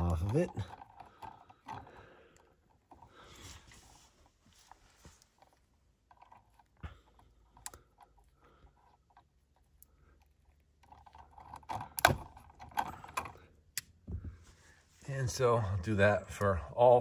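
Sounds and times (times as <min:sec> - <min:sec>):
wire stripper clicking and scraping: 0:00.0 - 0:03.2, 0:05.2 - 0:14.0.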